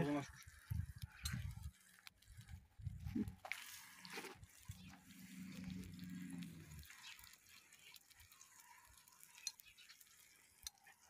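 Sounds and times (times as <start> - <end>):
sausage slices ticking and crackling: 0.0 - 11.0.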